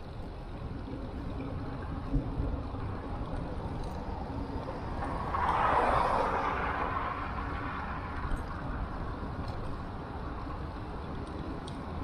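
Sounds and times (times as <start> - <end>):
car passing: 4.0 - 10.5.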